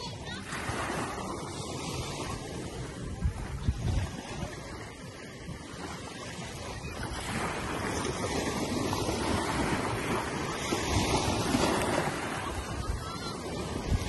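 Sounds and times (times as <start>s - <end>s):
ocean waves breaking on beach: 0.0s - 14.0s
wind rumbling on microphone: 0.9s - 14.0s.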